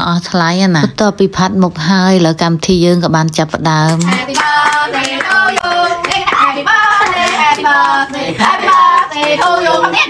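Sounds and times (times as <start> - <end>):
woman and children singing: 3.7 - 10.0
hands clapping: 3.9 - 10.0.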